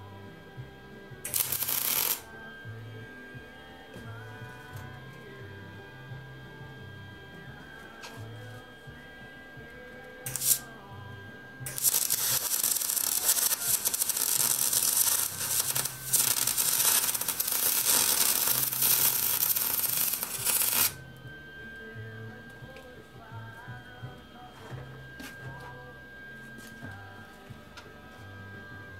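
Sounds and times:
arc welder crackling: 1.2s - 2.4s, 10.2s - 10.8s, 11.6s - 21.4s.

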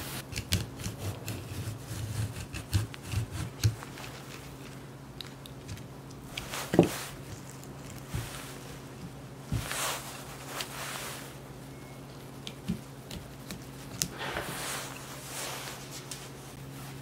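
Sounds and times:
cane webbing rustling and crackling: 0.0s - 17.0s.

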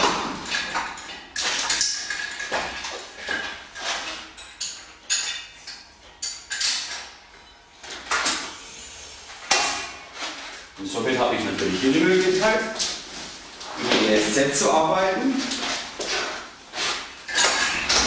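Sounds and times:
metal clanking and clinking: 0.0s - 8.4s, 16.0s - 18.0s.

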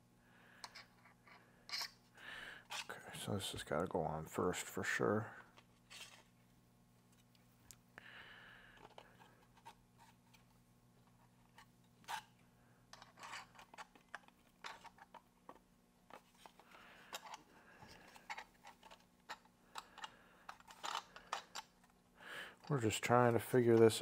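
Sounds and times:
faint steady hum: 0.0s - 24.0s
small parts clicking and tapping: 0.6s - 1.9s, 12.9s - 22.0s.

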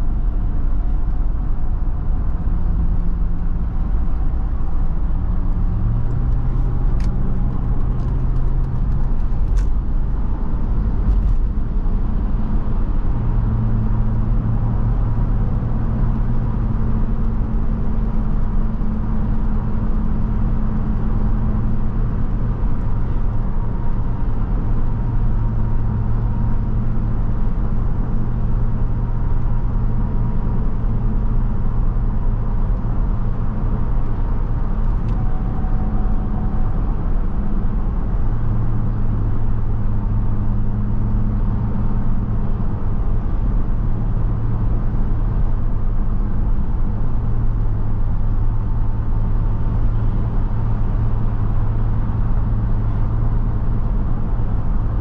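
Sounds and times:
tyre and road noise: 0.0s - 55.0s
truck engine humming: 32.2s - 45.6s.

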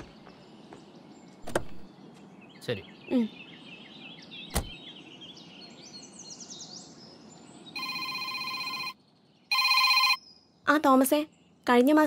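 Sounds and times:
birds chirping: 0.0s - 12.0s
telephone ringing: 7.8s - 10.2s.

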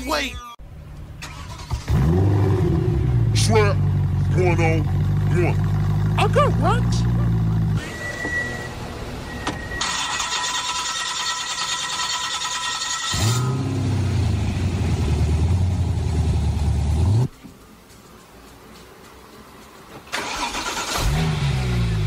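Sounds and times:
car engine revving and idling: 0.7s - 9.4s, 13.1s - 17.3s, 20.6s - 22.0s
car starter cranking: 1.2s - 2.1s, 9.8s - 13.4s, 20.1s - 21.7s.

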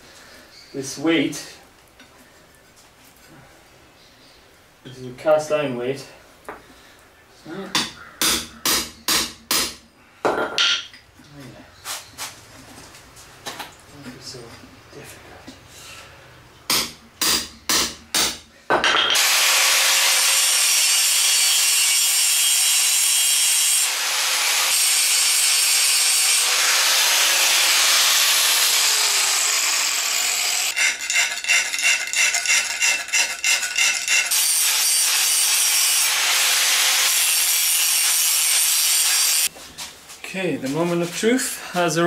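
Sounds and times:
reciprocating saw cutting steel: 19.2s - 39.5s.

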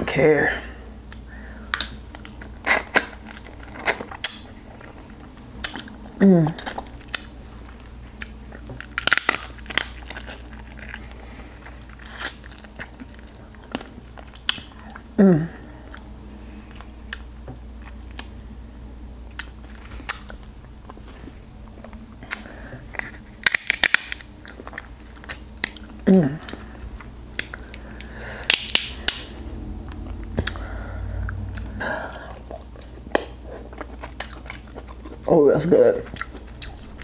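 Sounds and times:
crab shell cracking in mouth: 1.1s - 4.5s, 8.2s - 15.0s, 22.2s - 30.6s, 32.3s - 35.3s
wet chewing and sucking: 1.1s - 15.1s, 19.3s - 37.0s.

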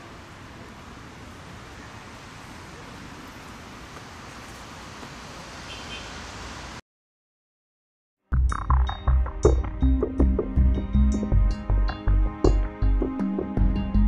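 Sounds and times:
low traffic rumble: 0.0s - 6.8s.

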